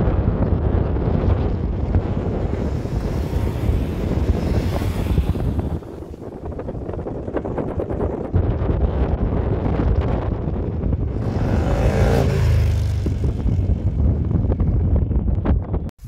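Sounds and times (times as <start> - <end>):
motorcycle engine passing by: 2.0 - 6.9, 11.0 - 14.7.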